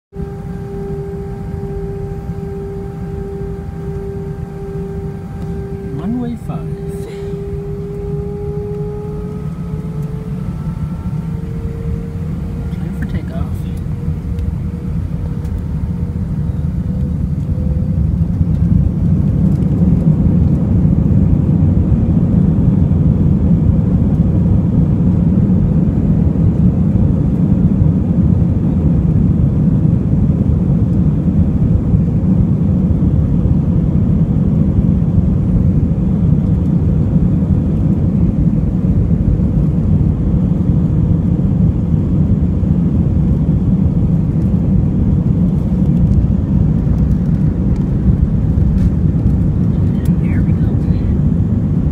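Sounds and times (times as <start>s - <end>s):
jet engines roaring: 0.1s - 28.4s, 29.0s - 51.9s
runway rumble: 43.0s - 51.9s.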